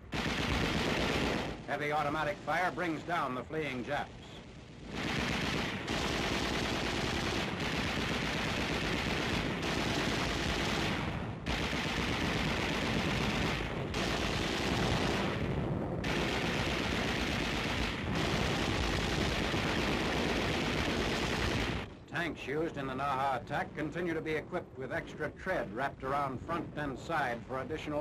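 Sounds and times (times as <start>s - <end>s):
machine-gun fire: 0.0s - 3.0s, 3.9s - 22.0s.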